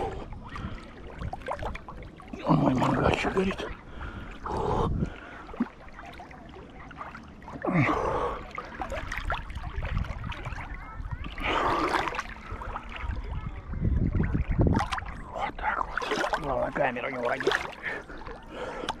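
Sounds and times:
swimmer breathing heavily: 0:00.0 - 0:01.2, 0:03.7 - 0:05.9, 0:07.5 - 0:09.2, 0:11.3 - 0:13.2, 0:17.4 - 0:19.0
water sloshing and splashing: 0:00.0 - 0:19.0.

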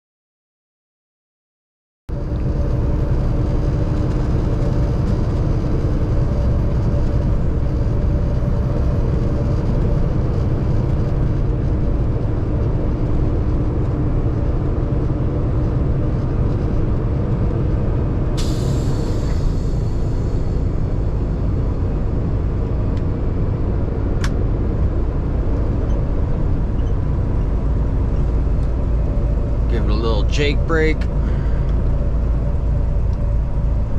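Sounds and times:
road noise: 0:02.1 - 0:33.9
truck diesel engine running: 0:02.1 - 0:33.9
air hiss: 0:18.4 - 0:20.6.

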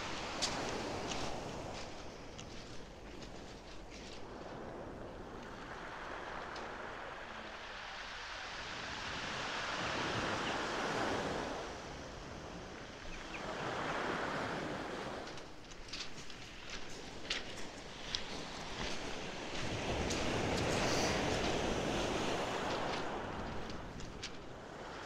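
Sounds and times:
surf breaking on shingle beach: 0:18.2 - 0:25.0.

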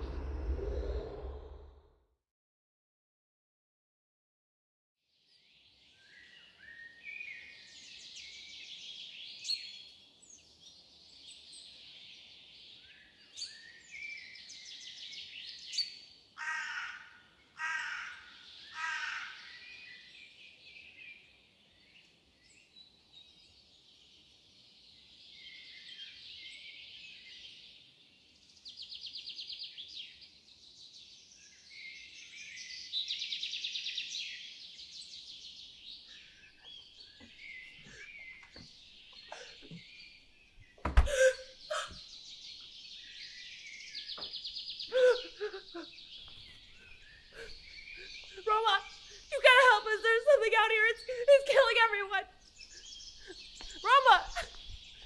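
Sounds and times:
small birds chirping and trilling: 0:05.2 - 0:55.0
harsh bird caws: 0:16.4 - 0:19.6.

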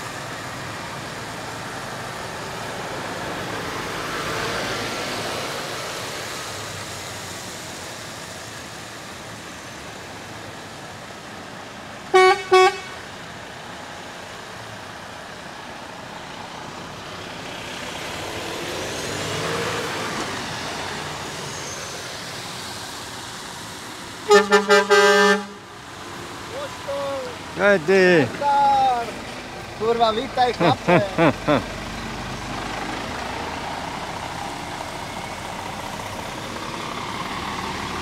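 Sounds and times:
trucks passing by: 0:00.0 - 0:38.0
loud horn blasts: 0:12.1 - 0:13.0, 0:24.3 - 0:25.6
truck horn toots: 0:12.1 - 0:13.0, 0:24.3 - 0:25.6.

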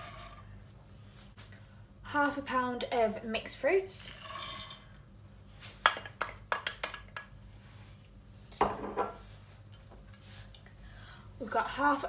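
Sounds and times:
dried fruit sliding into pot: 0:00.0 - 0:00.5, 0:04.1 - 0:04.9.

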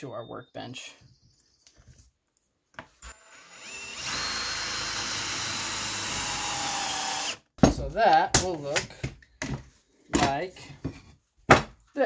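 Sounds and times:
power drill drilling through wood: 0:03.0 - 0:07.5.

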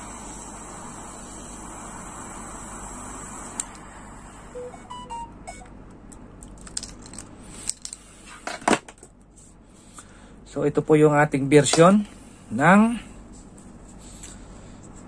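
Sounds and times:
faint beeps: 0:04.6 - 0:05.7.

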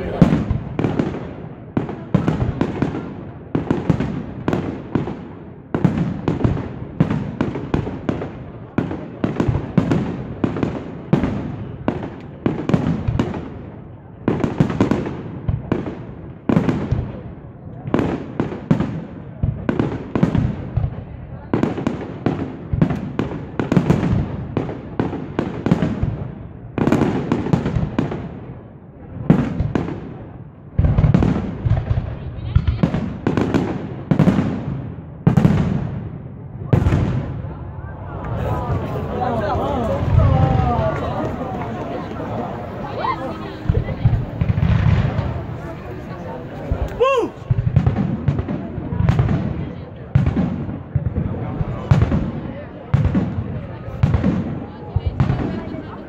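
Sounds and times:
fireworks bursting: 0:00.0 - 0:17.2, 0:29.2 - 0:56.0.

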